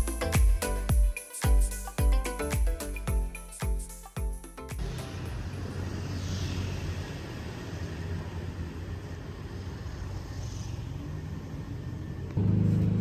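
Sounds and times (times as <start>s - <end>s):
low rumble of traffic: 4.8s - 13.0s
passing vehicle whoosh: 4.8s - 13.0s.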